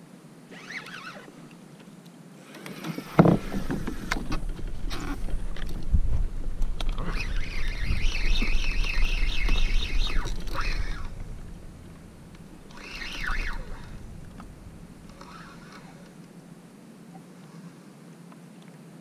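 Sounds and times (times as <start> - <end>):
fishing reel drag screaming: 0.5 - 1.4, 6.9 - 11.5, 12.6 - 14.3, 15.1 - 16.2
low rumble of handling and water: 0.6 - 19.0.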